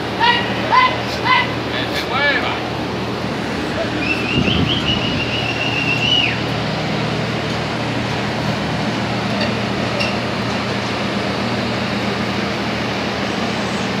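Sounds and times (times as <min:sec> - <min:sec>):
machinery and ventilation drone: 0:00.0 - 0:14.0
shrill whistle: 0:04.0 - 0:06.4.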